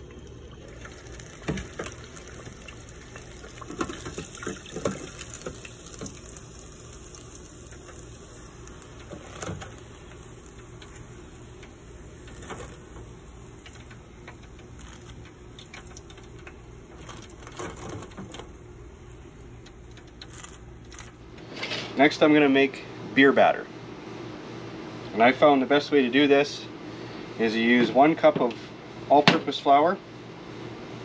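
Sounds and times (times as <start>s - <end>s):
hot oil crackling in fryer: 0.0s - 21.5s.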